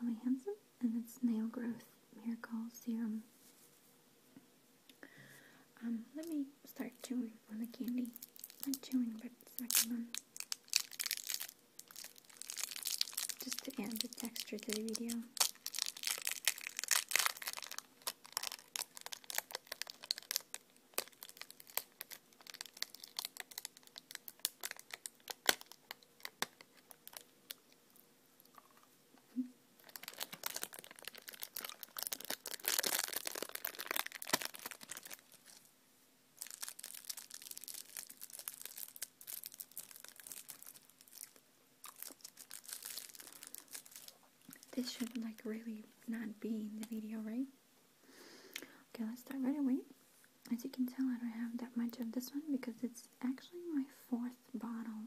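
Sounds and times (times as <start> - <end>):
cellophane wrapper crinkling: 7.6 - 28.9, 29.8 - 35.7, 36.4 - 45.4.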